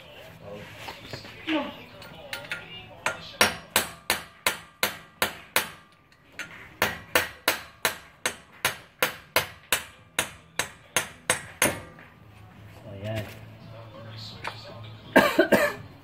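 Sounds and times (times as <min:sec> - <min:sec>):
hammer striking metal axle: 0:02.0 - 0:12.1.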